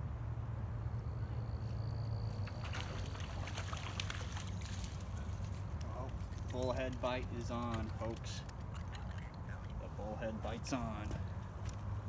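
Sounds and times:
water splashing: 2.4s - 11.0s
short clicks and crackles: 4.0s - 9.8s.

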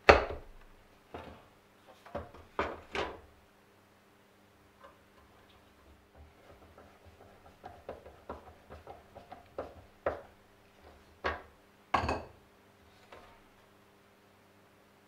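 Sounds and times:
tools knocking on wooden bench: 5.9s - 12.3s.

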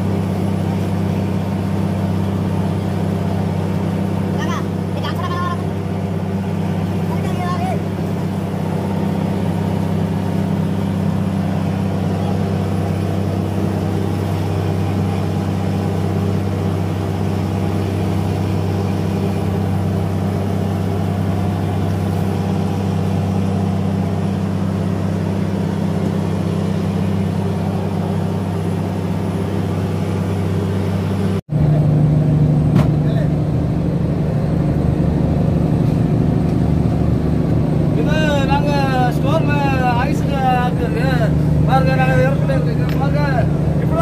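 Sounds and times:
boat diesel engine droning: 0.0s - 44.0s.

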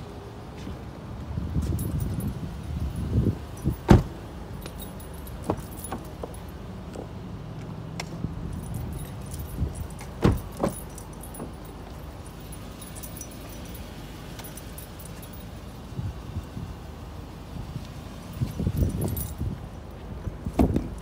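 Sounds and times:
keys jingling: 1.6s - 6.7s, 8.4s - 15.9s, 18.3s - 19.8s.

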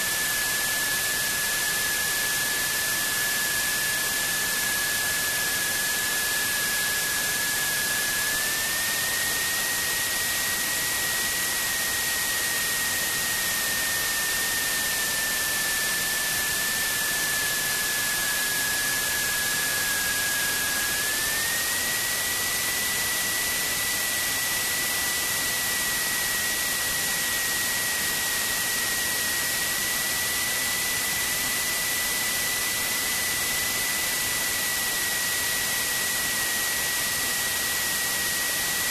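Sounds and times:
thin steady whine: 0.0s - 38.9s.

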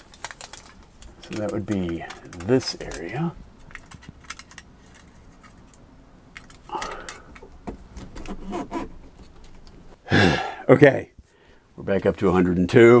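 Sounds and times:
foil tape crinkling: 0.0s - 5.8s.

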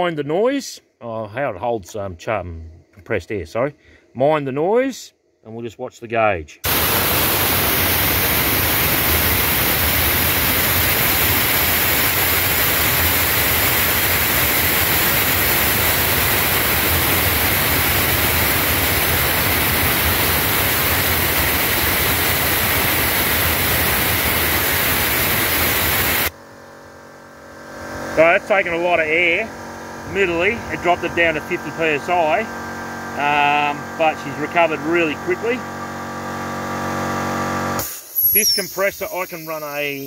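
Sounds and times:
air compressor running: 6.6s - 40.0s
compressed air hissing from blower: 6.7s - 26.3s, 37.8s - 40.0s.

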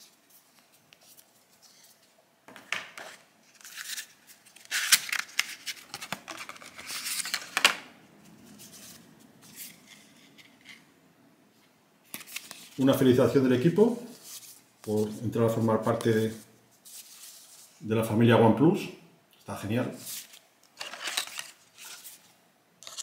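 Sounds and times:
packaging rustling and crinkling: 3.1s - 7.6s, 20.1s - 22.3s.

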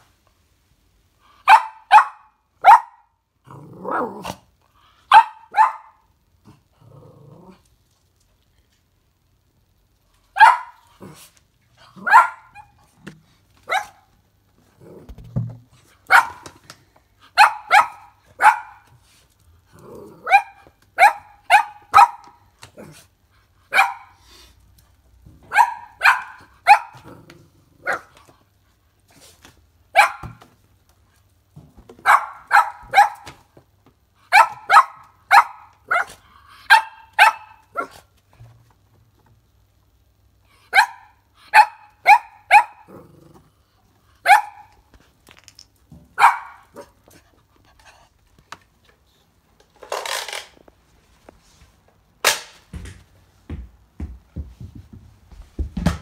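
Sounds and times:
puppy barking: 1.4s - 3.1s, 5.1s - 6.1s, 10.3s - 10.9s, 12.0s - 12.8s, 13.6s - 14.1s, 16.1s - 16.6s, 17.3s - 18.9s, 20.2s - 22.4s, 23.7s - 24.2s, 25.4s - 27.2s, 27.8s - 28.2s, 29.9s - 30.4s, 32.0s - 33.4s, 34.3s - 38.1s, 40.7s - 42.9s, 44.2s - 44.8s, 46.2s - 47.0s.

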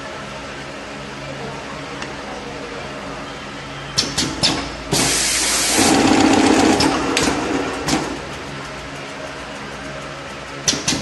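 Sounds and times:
machine humming: 0.0s - 11.0s
loud hiss of air: 4.2s - 8.2s.

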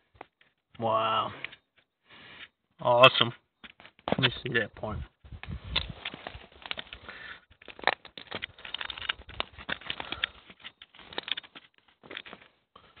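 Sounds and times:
handling clicks and rustles: 3.2s - 13.0s.

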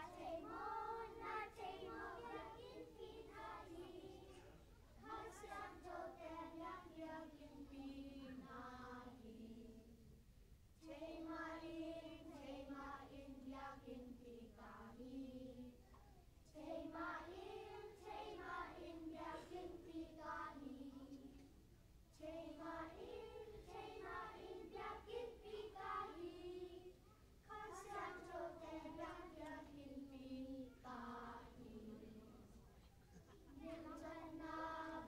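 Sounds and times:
children singing: 0.0s - 9.1s, 22.3s - 32.2s.

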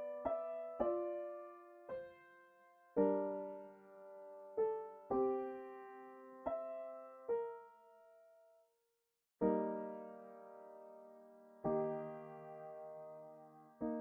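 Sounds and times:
gentle piano chords: 0.0s - 8.6s, 9.4s - 14.0s.

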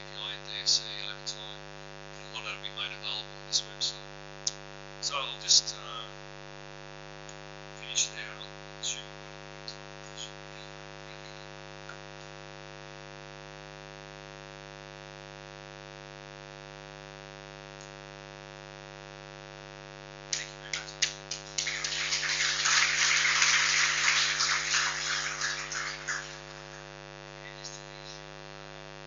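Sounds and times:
electrical mains hum: 0.0s - 14.9s, 20.2s - 29.0s
audience applause: 20.3s - 26.9s.

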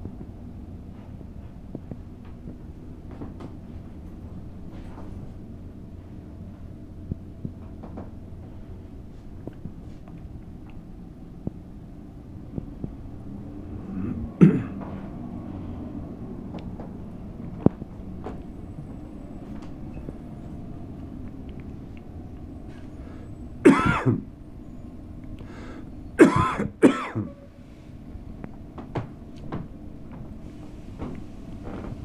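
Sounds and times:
low background hum: 0.0s - 32.0s
person coughing: 13.9s - 14.8s, 23.6s - 24.3s, 26.2s - 27.4s.

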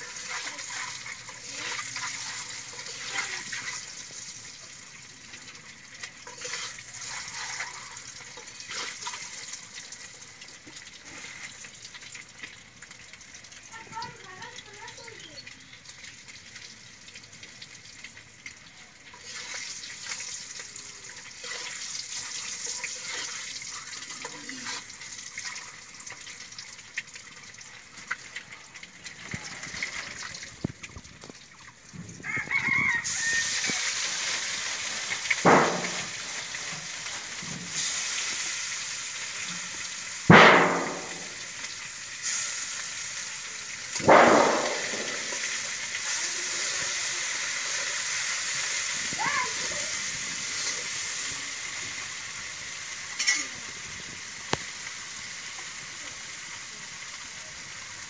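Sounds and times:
eggs sizzling in oil: 0.0s - 58.0s
rooster crowing: 32.2s - 33.9s.

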